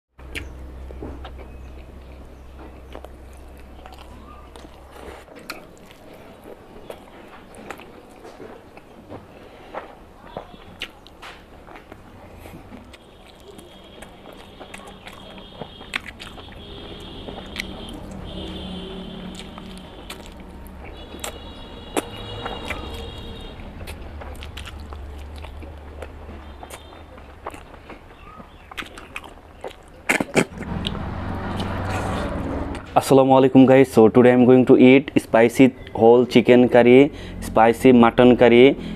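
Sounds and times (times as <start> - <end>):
wet chewing and mouth smacks: 0.3 - 9.1, 10.6 - 32.9
teeth crunching on bone: 10.7 - 18.6, 19.2 - 32.2
biting into egg: 19.3 - 20.5.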